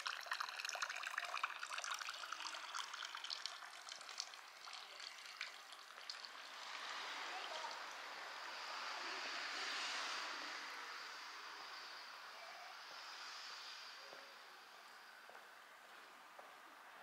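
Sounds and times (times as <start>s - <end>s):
water trickling into fountain: 0.0s - 8.9s.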